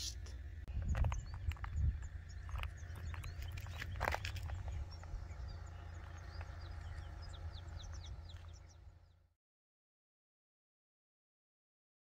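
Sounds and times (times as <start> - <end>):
small birds chirping: 0.0 - 9.3
wind rumble on microphone: 0.4 - 9.0.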